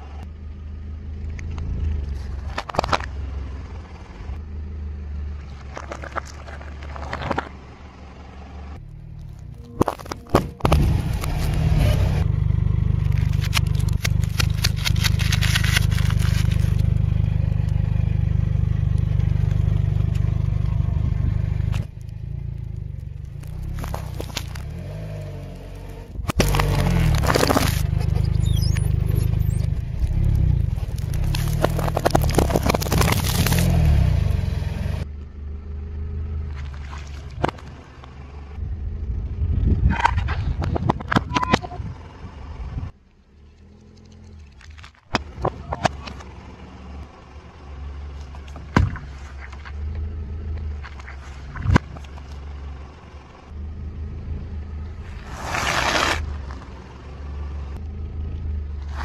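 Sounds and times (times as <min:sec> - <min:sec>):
car engine running low: 0:00.0 - 0:59.0
tyre crushing objects cracking: 0:09.0 - 0:12.2, 0:12.9 - 0:17.8, 0:21.6 - 0:34.5, 0:55.2 - 0:56.7.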